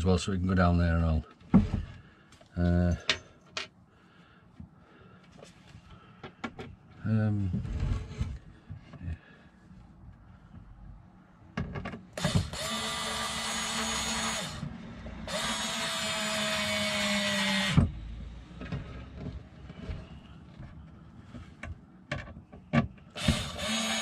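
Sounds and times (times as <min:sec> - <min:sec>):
cordless drill driving screws: 0:12.2 - 0:14.7, 0:15.3 - 0:17.9, 0:23.1 - 0:24.0
drill knock: 0:23.2 - 0:24.0.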